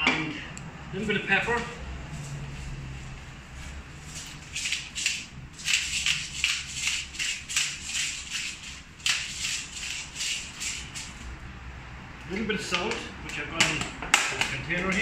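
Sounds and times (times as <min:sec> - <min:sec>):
pepper mill grinding: 0:04.5 - 0:11.2.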